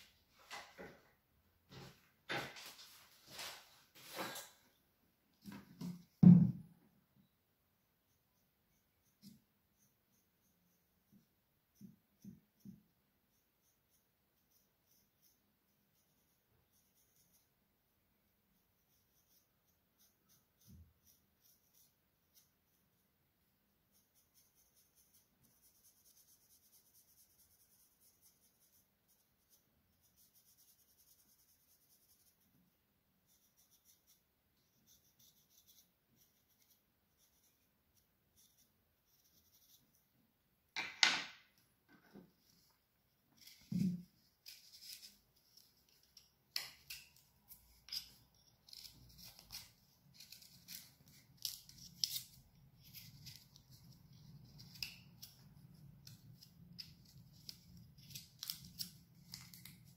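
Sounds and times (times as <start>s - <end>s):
pencil scratching on wood: 8.0s - 17.6s, 18.4s - 23.0s, 23.8s - 32.6s, 33.2s - 40.0s.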